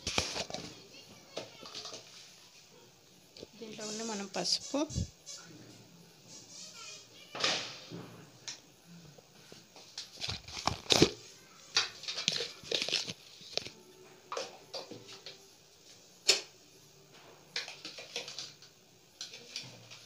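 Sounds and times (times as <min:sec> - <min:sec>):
objects being handled: 0:00.0 - 0:02.4, 0:09.4 - 0:15.4.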